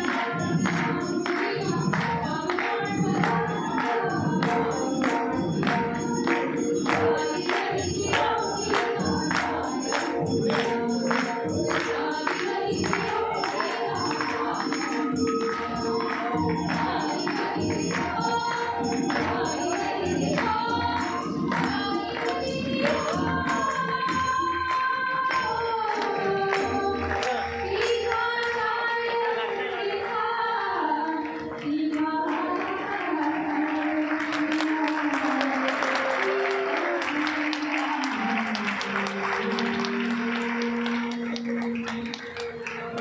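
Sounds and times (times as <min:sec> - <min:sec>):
harmonium drone: 0:00.0 - 0:30.8
woman singing: 0:00.0 - 0:42.0
audience clapping: 0:00.0 - 0:43.0.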